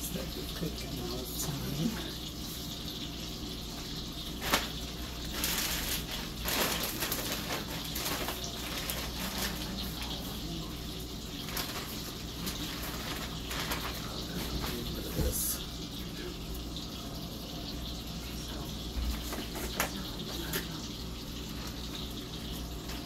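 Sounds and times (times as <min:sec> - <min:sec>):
steak searing in a skillet: 0:00.0 - 0:23.0
plastic bag rustling: 0:03.7 - 0:15.7.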